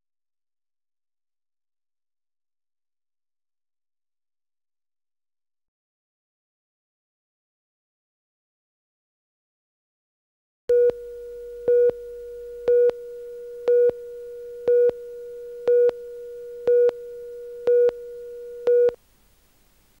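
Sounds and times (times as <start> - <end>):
steady mid-pitched tone: 10.7 - 19.0
loud beeps: 11.6 - 19.0.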